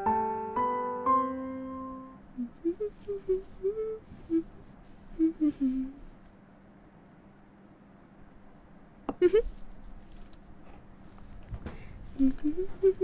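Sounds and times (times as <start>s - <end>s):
gentle piano music: 0.0s - 2.4s
child humming softly: 2.4s - 6.2s, 12.2s - 13.0s.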